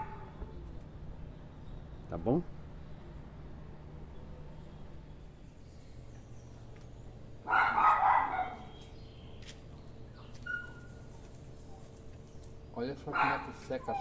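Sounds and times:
dog barking: 0.0 - 0.3, 7.4 - 8.7, 13.1 - 14.0.

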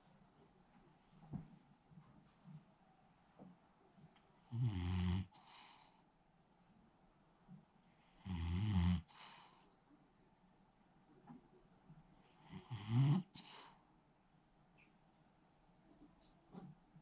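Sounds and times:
dog snoring: 4.5 - 5.5, 8.2 - 9.2, 12.4 - 13.4.

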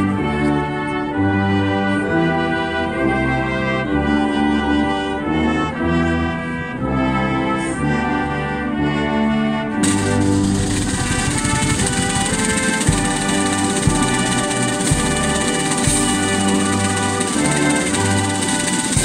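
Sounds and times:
brass band playing: 0.0 - 19.0
rattling noise: 9.8 - 19.0.

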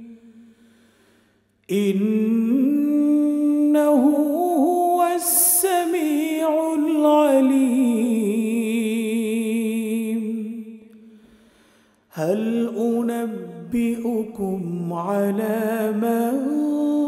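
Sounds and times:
man reciting melodically: 12.1 - 17.0.

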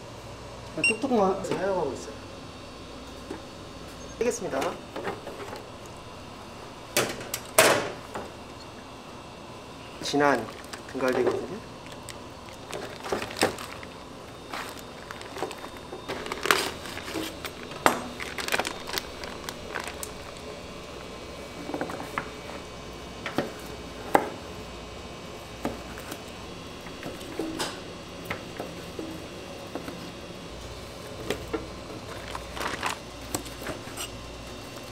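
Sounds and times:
plastic bag crinkling: 10.2 - 20.5, 32.0 - 33.5.

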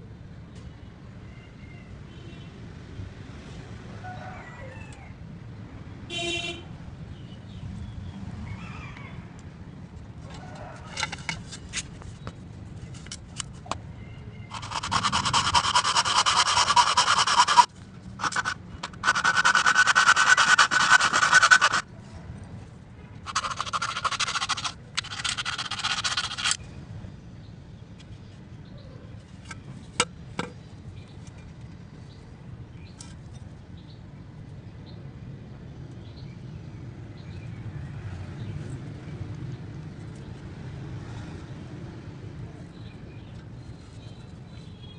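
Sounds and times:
hacksaw cutting plastic pipe: 14.5 - 21.8, 23.3 - 26.6.

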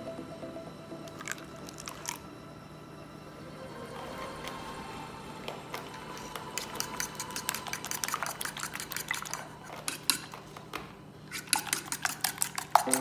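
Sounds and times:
fork whisking eggs in a bowl: 6.2 - 13.0.

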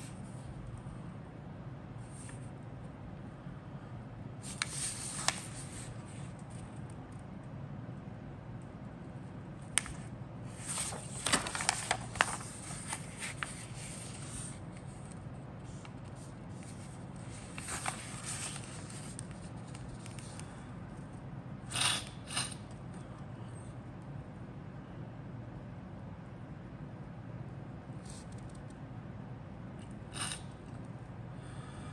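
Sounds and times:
steady low hum: 0.0 - 31.9
paper crinkling and rustling: 10.5 - 15.1, 16.6 - 20.4.

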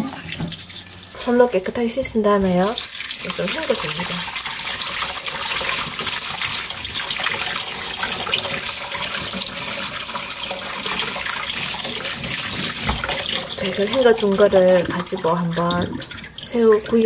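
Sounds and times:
tap water splashing in colander: 0.0 - 1.4, 2.0 - 17.0.

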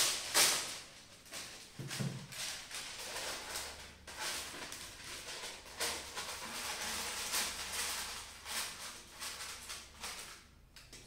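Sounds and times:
paper rustling and crinkling: 0.0 - 10.5.

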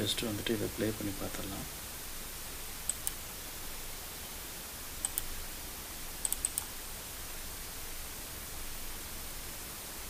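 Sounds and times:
steady background hiss: 0.0 - 10.0
computer mouse clicking: 2.8 - 3.2, 5.0 - 5.3, 6.2 - 6.7.

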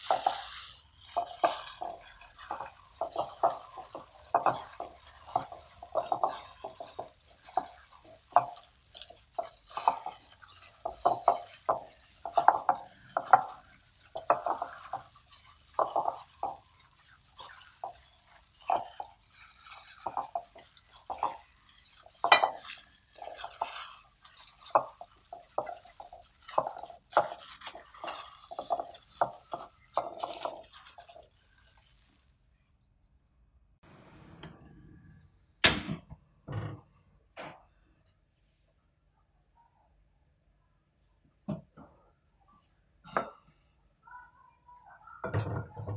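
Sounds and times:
meat mixture squelching: 0.0 - 32.9
plastic glove rustling: 0.0 - 33.0.

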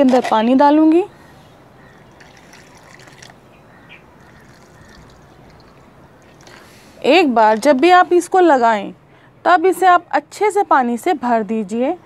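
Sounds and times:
water poured onto soil: 2.1 - 3.4, 4.2 - 6.7.

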